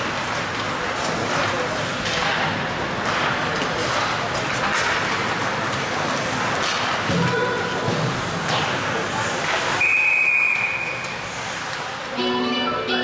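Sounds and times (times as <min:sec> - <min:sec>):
ice rink crowd noise: 0:00.0 - 0:13.0
referee's whistle blast: 0:09.8 - 0:11.0
arena music: 0:12.2 - 0:13.0.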